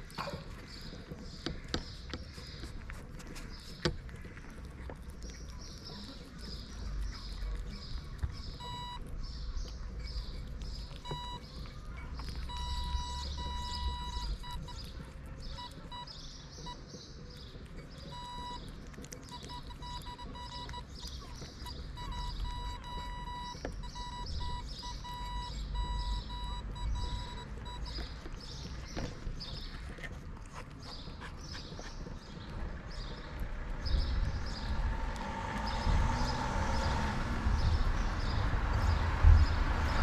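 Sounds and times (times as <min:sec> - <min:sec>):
kittens chewing and lapping food: 0:00.0 - 0:40.0
high beep: 0:21.6 - 0:27.9.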